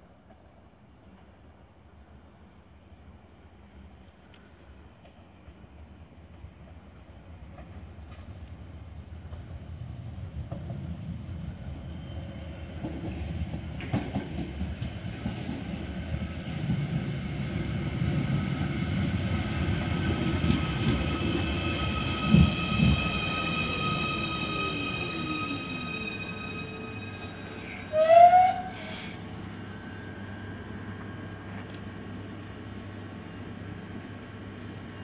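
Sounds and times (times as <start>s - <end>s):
train rumble: 0.0s - 35.0s.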